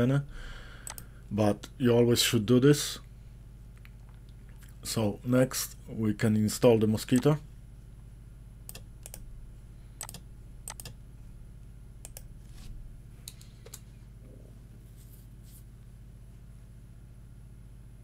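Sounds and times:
steady low hum: 0.0s - 18.0s
mouse and keyboard clicks: 10.0s - 11.0s.

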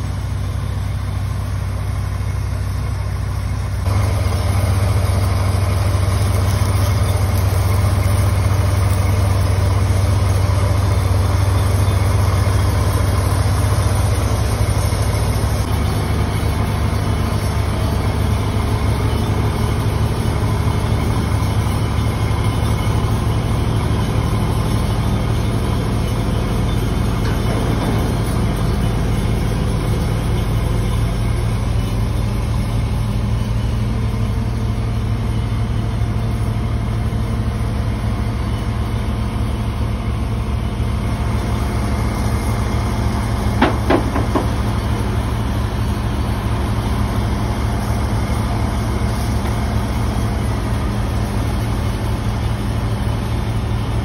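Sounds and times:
crane diesel engine droning: 0.0s - 54.0s
metal clanking: 24.0s - 31.0s, 43.4s - 44.9s.

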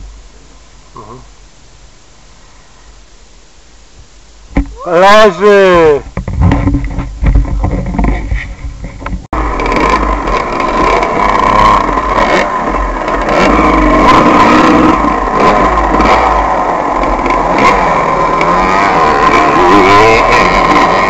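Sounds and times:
dirt bike engine revving: 4.9s - 21.0s.

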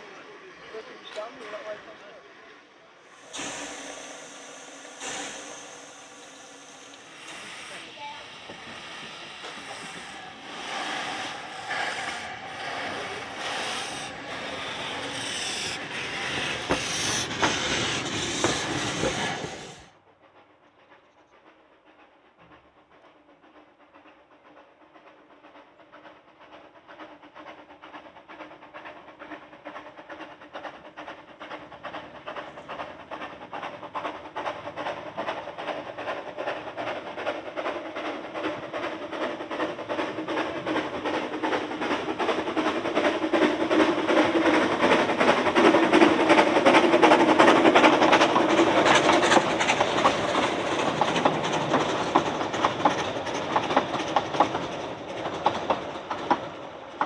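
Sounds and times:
distant steam train exhaust beats: 0.0s - 57.0s
steam locomotives hissing: 0.0s - 57.0s.

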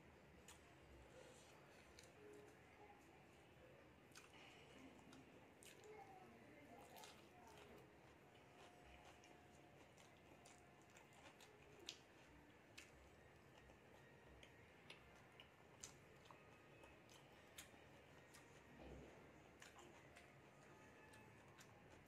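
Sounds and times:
chewing clicks and smacks: 4.1s - 6.0s, 6.8s - 22.0s.

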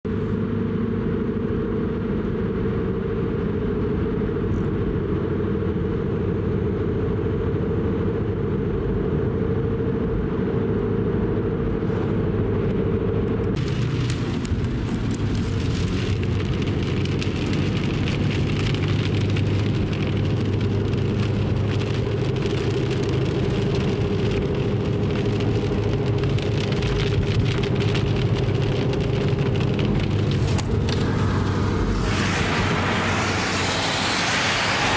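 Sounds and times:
car road and engine hum: 0.1s - 34.9s
crackling hiss: 13.6s - 34.9s.

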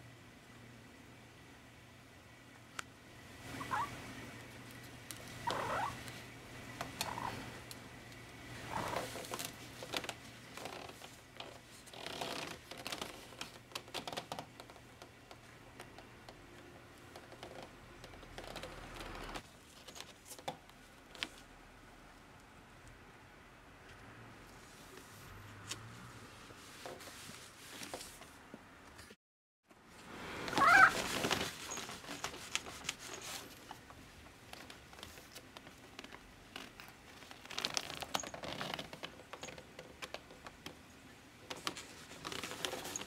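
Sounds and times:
soft rustles and clicks: 2.8s - 21.5s, 23.8s - 43.0s
cat meowing: 30.5s - 31.0s.

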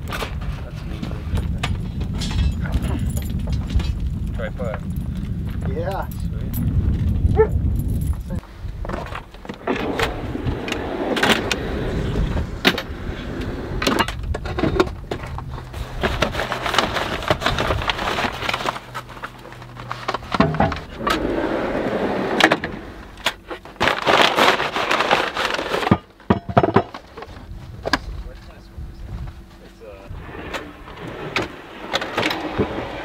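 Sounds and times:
packing paper rustling: 15.7s - 20.4s, 23.4s - 26.0s
drawer clicks and knocks: 20.3s - 21.2s.

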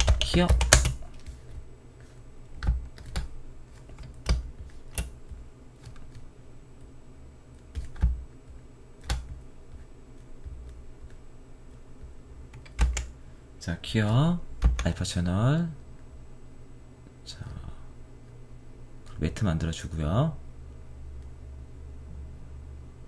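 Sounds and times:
computer keyboard typing: 0.0s - 1.3s, 2.6s - 6.2s, 7.7s - 8.2s, 9.0s - 9.8s, 12.0s - 13.1s, 14.6s - 14.9s.

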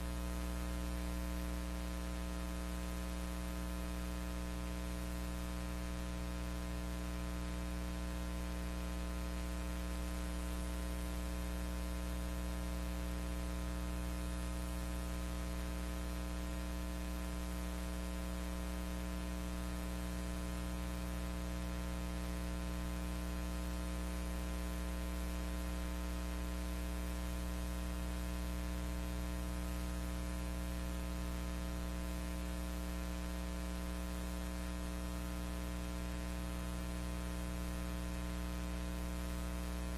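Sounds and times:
electrical hum: 32.4s - 39.9s.

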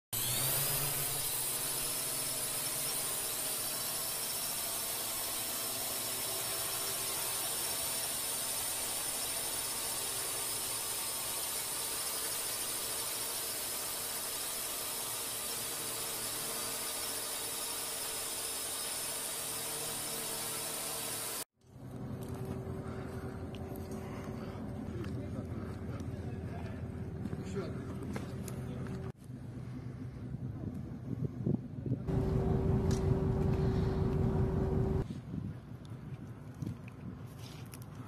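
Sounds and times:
high-pitched mechanical whine: 0.2s - 25.6s, 32.1s - 35.0s.

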